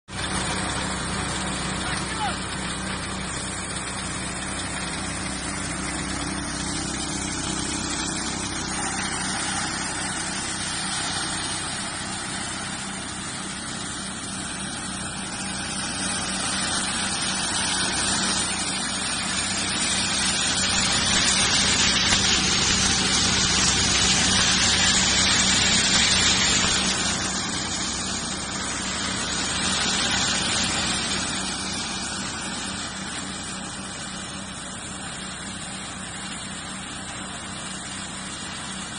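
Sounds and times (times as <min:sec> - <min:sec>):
thresher humming: 0:00.1 - 0:38.9
rushing hiss: 0:04.4 - 0:33.9.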